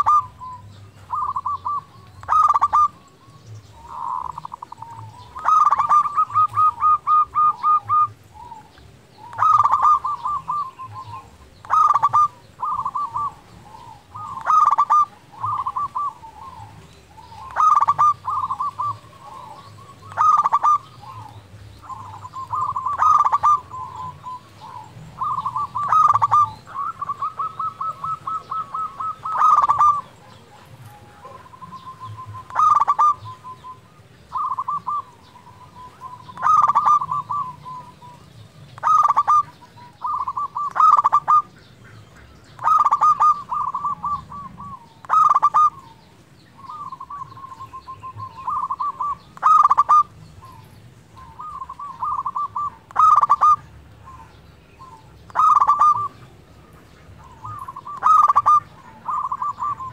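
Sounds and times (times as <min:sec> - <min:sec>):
dove cooing: 0:00.0 - 0:59.9.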